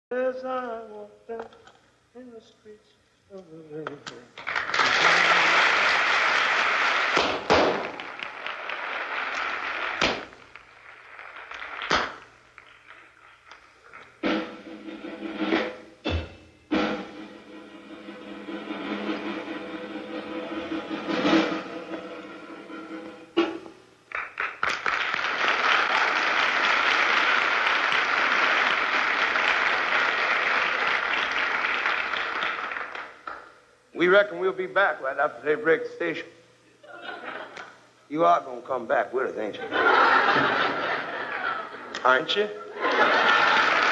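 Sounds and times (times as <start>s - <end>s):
audience applauding: 4.4s - 14.2s, 24.1s - 33.2s, 42.8s - 43.9s.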